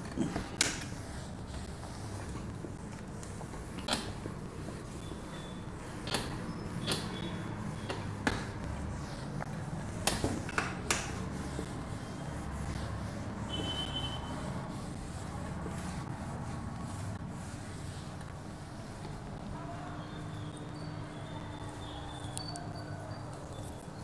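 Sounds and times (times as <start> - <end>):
duster wiping whiteboard: 0.0 - 19.8.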